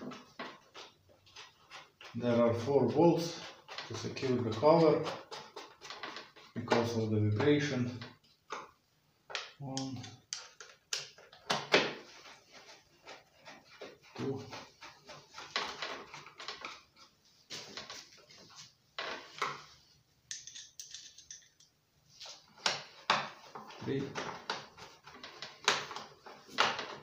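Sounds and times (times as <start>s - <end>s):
bolts clicking and knocking: 20.3s - 21.8s.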